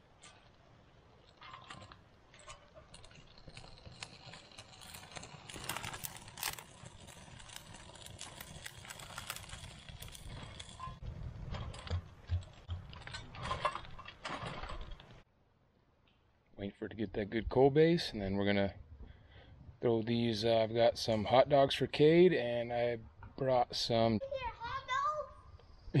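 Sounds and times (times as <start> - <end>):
kindling crackling and popping: 0.0 - 15.3, 25.5 - 26.0.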